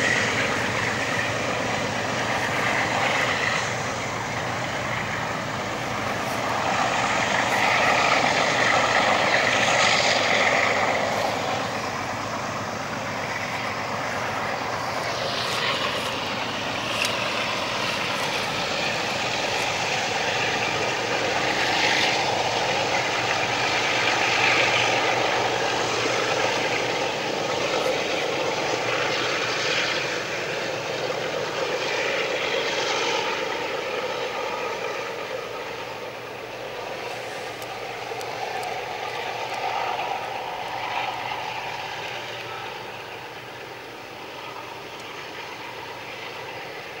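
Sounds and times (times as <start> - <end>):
diesel locomotives working hard: 0.0 - 47.0.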